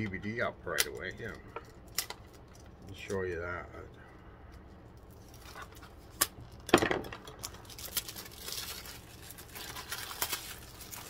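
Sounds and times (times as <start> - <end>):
plastic shrink-wrap tearing: 5.1 - 11.0.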